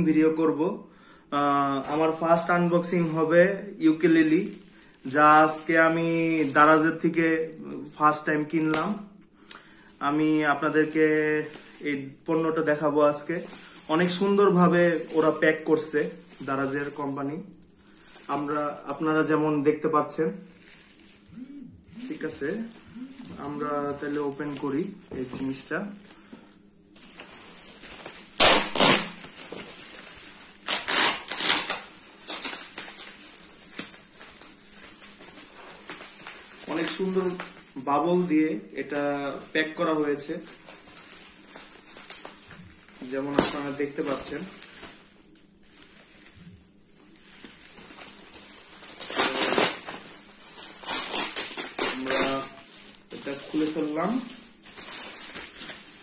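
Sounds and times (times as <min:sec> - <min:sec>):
plastic bag and bubble wrap crinkling: 0:01.4 - 0:56.0
tape and plastic ripping: 0:26.9 - 0:37.6, 0:40.3 - 0:56.0.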